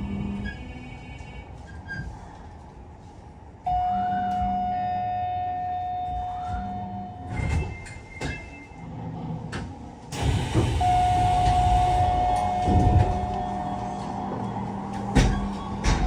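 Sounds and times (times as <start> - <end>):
train doors thudding and rumbling: 6.1 - 16.0
electronic door warning tone: 10.8 - 16.0.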